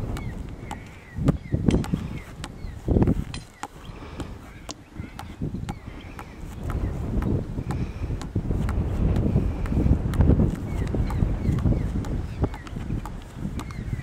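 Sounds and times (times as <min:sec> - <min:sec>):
ball headed thuds: 0:00.0 - 0:14.0
wind rumbling on microphone: 0:00.0 - 0:14.0.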